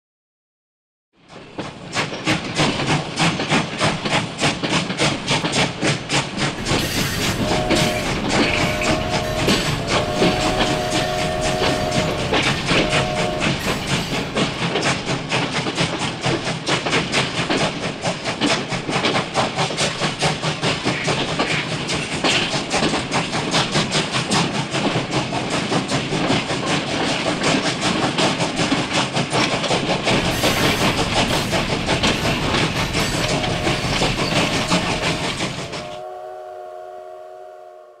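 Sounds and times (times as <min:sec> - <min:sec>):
train wheels clickety-clack: 0:01.2 - 0:36.1
train whistle chord: 0:06.6 - 0:14.5, 0:32.9 - 0:38.0.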